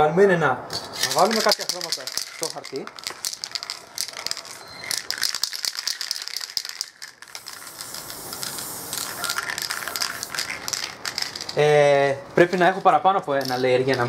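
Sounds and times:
spray can mixing ball rattling: 0.7 - 14.0
spray paint hissing: 1.0 - 11.8.

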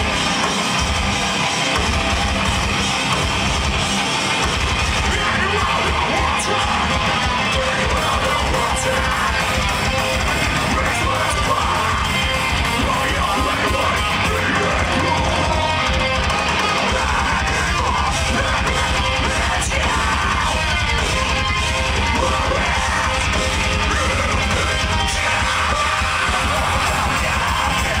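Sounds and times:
bass guitar: 0.0 - 28.0
drums: 0.0 - 28.0
heavy distorted electric guitars: 0.0 - 28.0.

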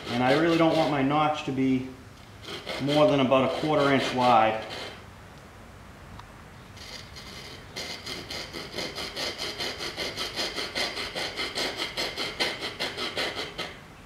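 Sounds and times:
hand saw cutting wood: 0.0 - 1.2, 2.4 - 5.0, 6.8 - 13.8.

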